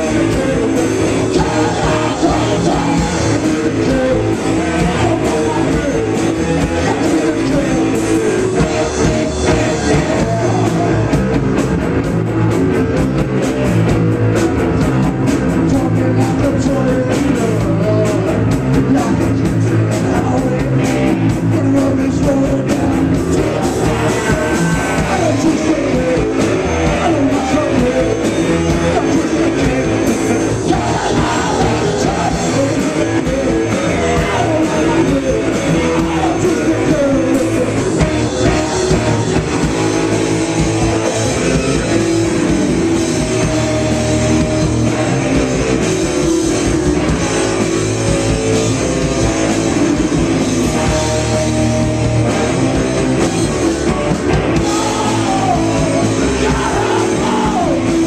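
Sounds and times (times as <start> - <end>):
man singing into microphone: 0.0 - 11.2, 15.6 - 20.8, 21.4 - 39.2, 54.6 - 58.0
drum kit: 0.0 - 58.0
electric guitars: 0.0 - 58.0.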